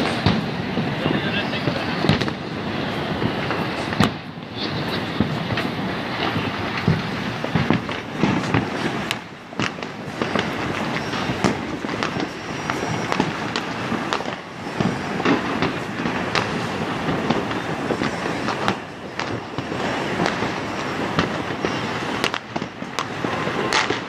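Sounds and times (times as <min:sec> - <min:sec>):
firework bangs: 0:00.0 - 0:24.0
fireworks crackling: 0:00.0 - 0:24.0.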